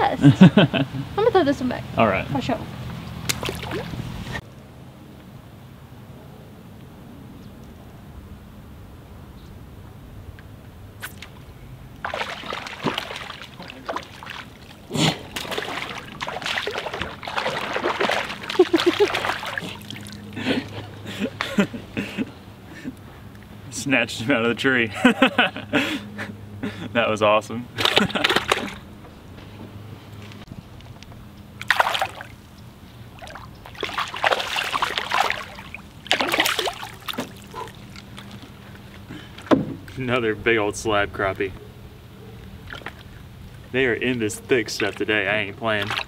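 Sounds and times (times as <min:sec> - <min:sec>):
fish thrashing and splashing: 0:03.2 - 0:04.4, 0:12.0 - 0:20.8, 0:27.8 - 0:28.8, 0:31.6 - 0:32.4, 0:33.1 - 0:39.0, 0:45.8 - 0:46.0.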